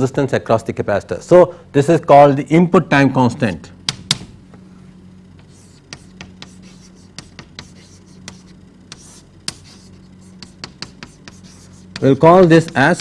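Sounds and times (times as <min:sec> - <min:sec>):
low electrical hum: 0:00.0 - 0:13.0
pen scratching on paper: 0:05.4 - 0:13.0.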